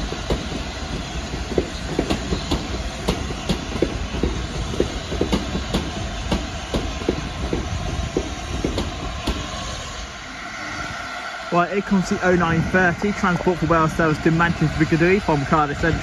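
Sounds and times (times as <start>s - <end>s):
train wheels clicking over rail joints: 0.0s - 9.9s
train low rumble: 0.0s - 16.0s.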